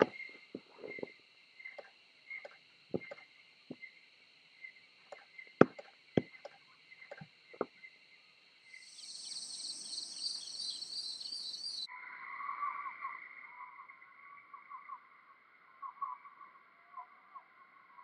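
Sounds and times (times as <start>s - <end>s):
crickets and insects chirping: 0.0s - 18.0s
sharp knocks: 3.0s - 3.2s, 5.6s - 7.7s.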